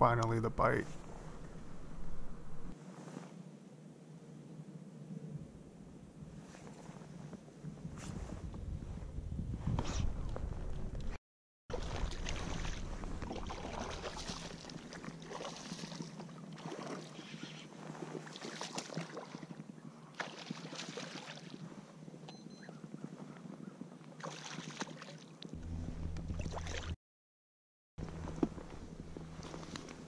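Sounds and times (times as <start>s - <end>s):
water sloshing around a kayak: 11.7s - 21.6s, 24.2s - 25.5s, 26.3s - 27.0s.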